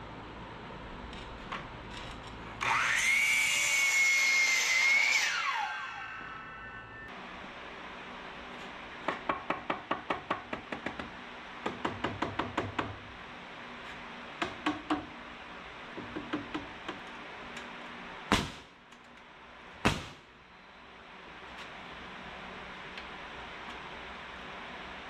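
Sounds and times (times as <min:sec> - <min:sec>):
pneumatic nailer firing: 0:18.3 - 0:18.8, 0:19.8 - 0:20.3.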